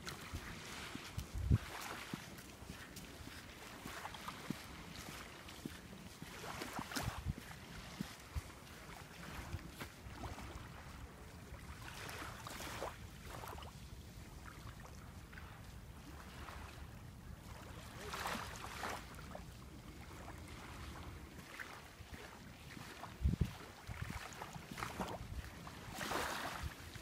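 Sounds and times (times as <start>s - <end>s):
wind buffeting microphone: 0.0s - 1.9s, 23.1s - 24.3s
waves lapping on sandy shore: 0.0s - 27.0s.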